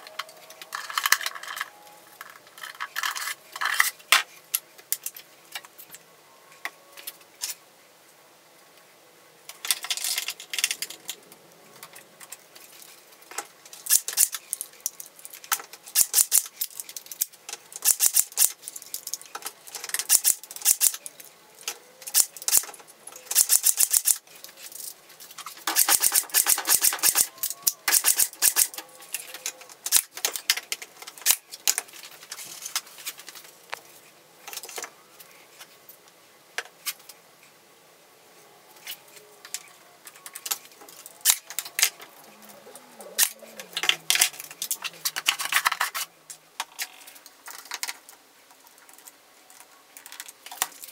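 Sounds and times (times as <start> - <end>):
rapid clicking and rattling: 25.5 - 31.8.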